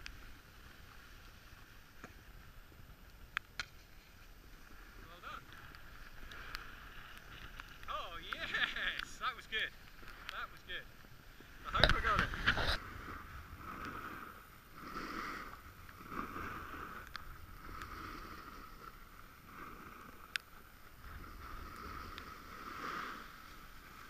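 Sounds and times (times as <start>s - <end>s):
snowboard scraping over snow: 0.1s - 24.0s.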